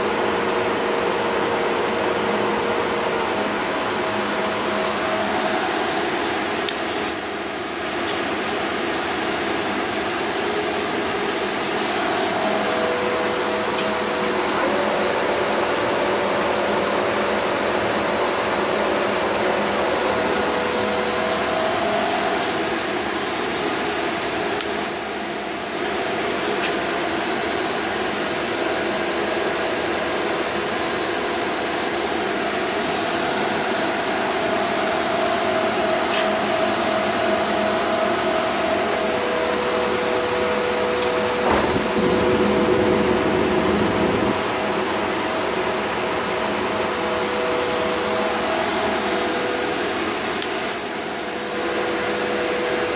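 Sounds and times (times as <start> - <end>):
lathe whirring with gear whine: 0.0 - 52.9
machine clunk: 41.0 - 42.4.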